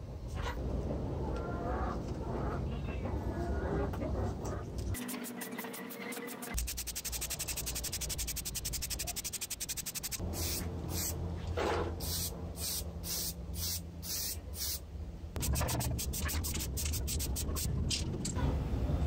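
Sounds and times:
spray can ball rattling: 6.6 - 11.1, 15.4 - 17.7
short hissing sprays: 12.0 - 14.8.

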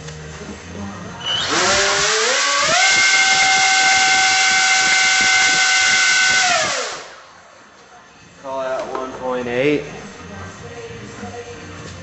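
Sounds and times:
electric motor whine: 1.4 - 7.2.

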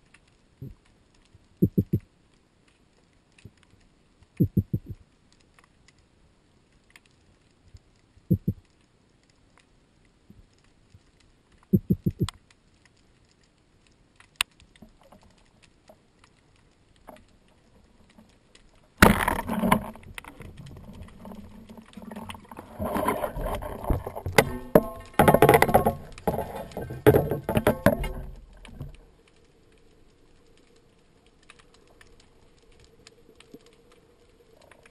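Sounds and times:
faint underwater clicks: 0.0 - 34.9
underwater knocking: 1.6 - 2.0, 4.4 - 5.0
churning water and bubbles: 16.9 - 34.9.

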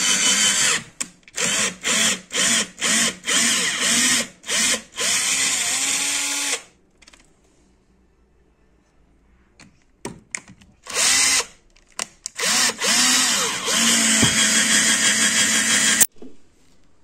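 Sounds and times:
power drill boring into plastic: 12.4 - 16.1.

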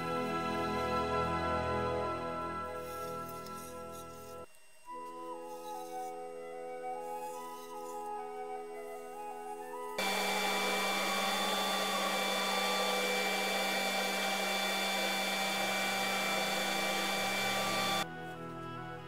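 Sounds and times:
dust extractor and lathe running: 10.0 - 18.0.

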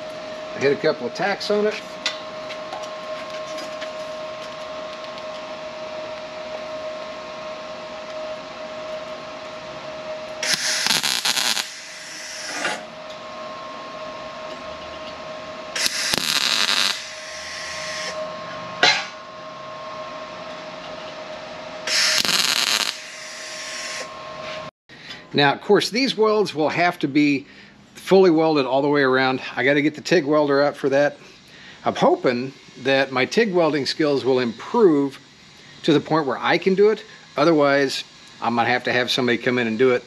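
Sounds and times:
steady hum: 0.0 - 40.0
welding crackle: 10.4 - 12.6, 15.8 - 18.2, 21.9 - 24.1.

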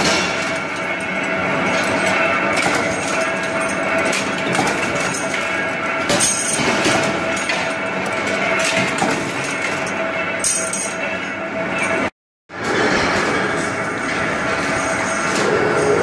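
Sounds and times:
metal rods clattering: 0.0 - 11.1
bending press humming: 0.0 - 16.0.

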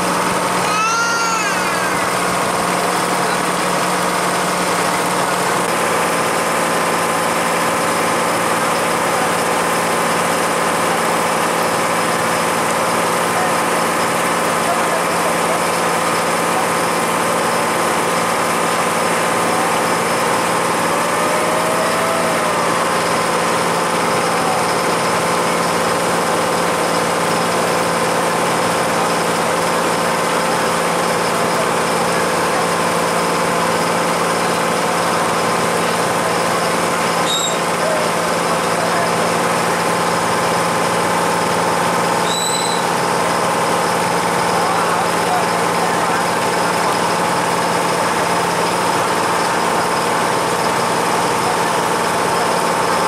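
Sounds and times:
boat engine droning: 0.0 - 53.0.

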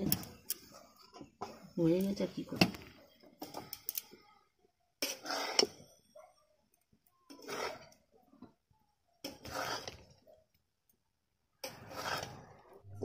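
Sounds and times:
metal spatula scraping a wok: 5.0 - 5.8, 7.3 - 8.1, 9.2 - 10.1, 11.6 - 12.8.

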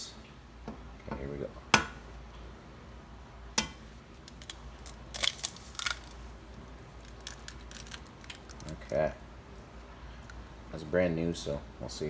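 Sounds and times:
eggshell crackling clicks: 4.2 - 6.2, 7.0 - 9.0.

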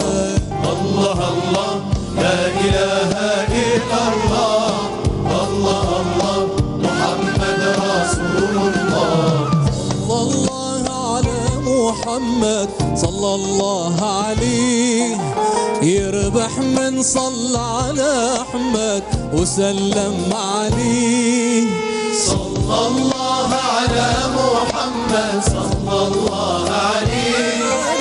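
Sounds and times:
men chanting religious song: 0.0 - 15.2, 15.8 - 28.0
choir and band accompaniment: 0.0 - 28.0
man singing ornamented melody: 6.8 - 23.3.

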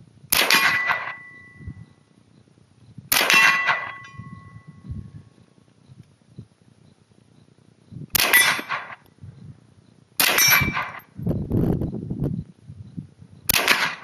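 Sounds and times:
rifle shots: 0.3 - 1.4, 3.1 - 4.1, 8.1 - 9.0, 10.2 - 11.1, 13.5 - 14.0
metallic ring: 0.5 - 2.0, 3.3 - 5.2, 8.2 - 9.0, 10.2 - 11.1.

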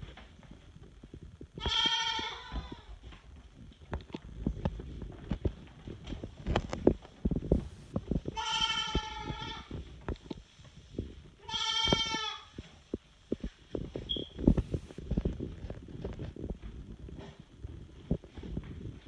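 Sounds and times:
hooves clicking on furniture: 0.0 - 19.0
goat kids bleating: 1.6 - 3.0, 8.3 - 9.8, 11.4 - 12.6.

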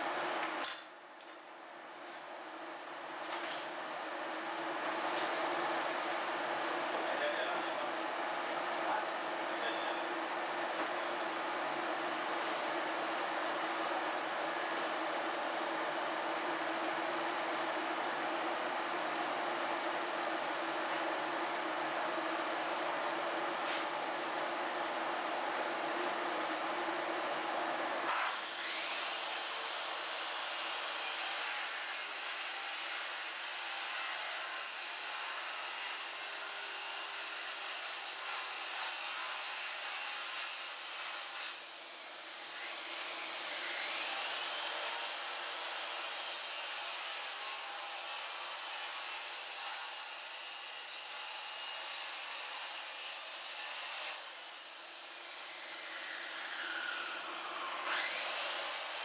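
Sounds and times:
circular saw cutting: 28.3 - 59.0.

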